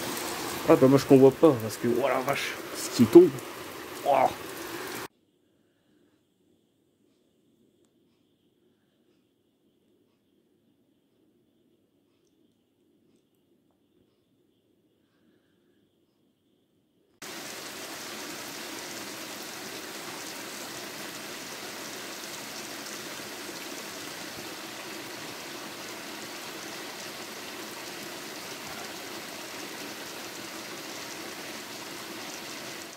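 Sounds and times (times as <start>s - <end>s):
heavy rain pouring: 0.0s - 5.1s, 17.2s - 32.9s.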